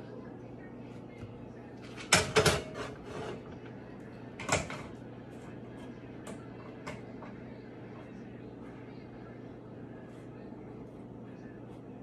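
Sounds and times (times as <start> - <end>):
kitchen knocks and rattles: 1.8 - 3.6, 4.4 - 5.0.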